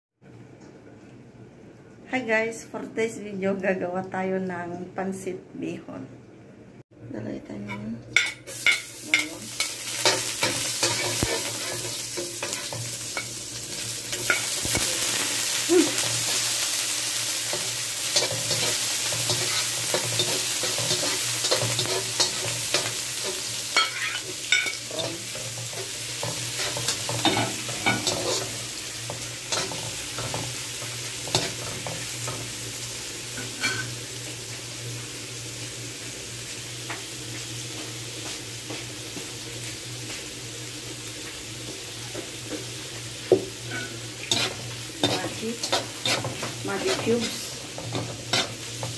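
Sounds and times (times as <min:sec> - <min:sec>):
food sizzling in hot oil: 0:08.2 - 0:48.9
metal spatula scraping pan: 0:43.7 - 0:48.9.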